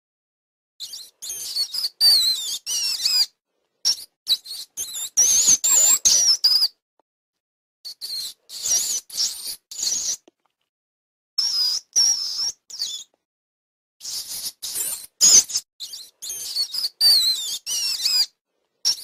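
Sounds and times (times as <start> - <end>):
high-pitched animal chirps: 0.8 - 3.3, 3.9 - 6.7, 7.9 - 10.2, 11.4 - 13.1, 14.0 - 18.3.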